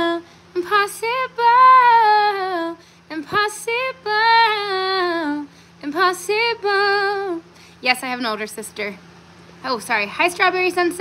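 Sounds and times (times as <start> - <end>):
breath: 2.8 - 3.1, 7.5 - 7.8.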